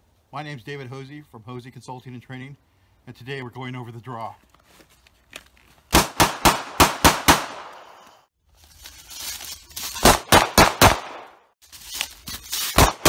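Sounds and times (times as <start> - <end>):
pistol shots: 5.9 - 8.0, 10.0 - 11.4, 12.8 - 13.0.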